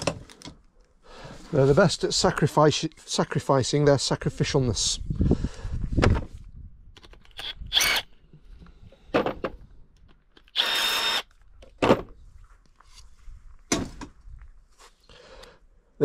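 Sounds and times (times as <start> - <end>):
cordless drill running: 7.3 - 8.1, 10.4 - 11.3.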